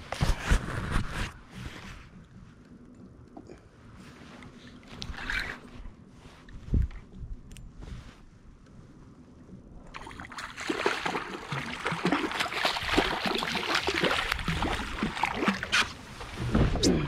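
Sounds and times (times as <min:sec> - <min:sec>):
water churning: 0:09.9 - 0:17.0
fish thrashing and splashing: 0:10.0 - 0:16.0.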